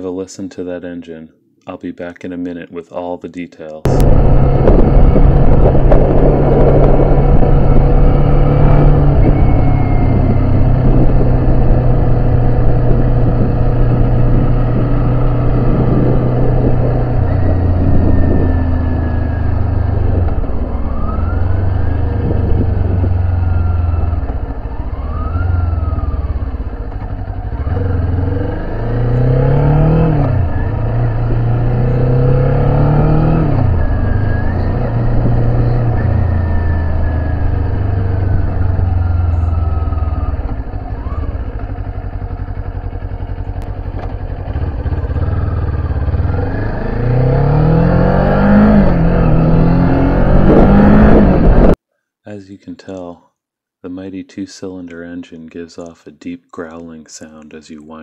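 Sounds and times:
wind rushing: 3.9 - 41.8, 44.3 - 51.8
motorcycle engine revving: 3.9 - 51.8.

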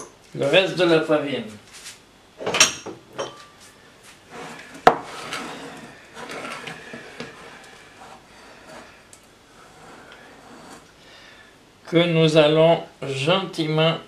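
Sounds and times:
dough rubbing in a glass bowl: 4.1 - 11.0.

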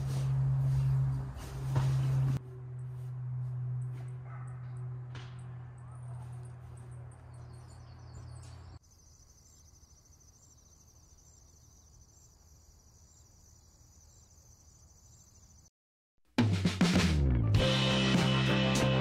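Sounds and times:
insects trilling: 8.8 - 15.7.

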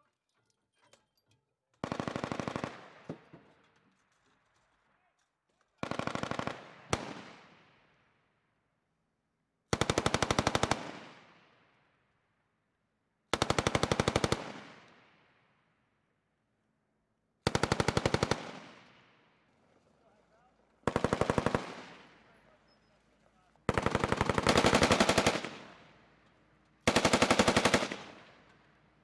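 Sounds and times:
machine gun firing bursts: 1.8 - 3.0, 5.8 - 7.3, 9.7 - 11.0, 13.4 - 14.8, 17.4 - 18.9, 20.8 - 22.2, 23.6 - 25.9, 26.8 - 28.4
rolling echo of gunfire: 1.8 - 3.1, 5.8 - 8.0, 9.7 - 11.5, 13.4 - 15.4, 17.4 - 19.9, 20.8 - 22.4, 23.6 - 26.2, 26.8 - 28.5.

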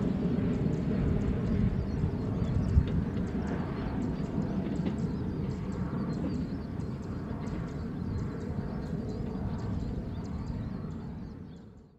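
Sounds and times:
jet engines rumbling: 0.0 - 11.8.

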